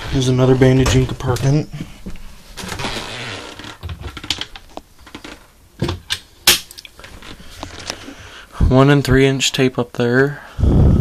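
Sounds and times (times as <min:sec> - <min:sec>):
rustling: 0:00.0 - 0:05.6, 0:06.8 - 0:08.5.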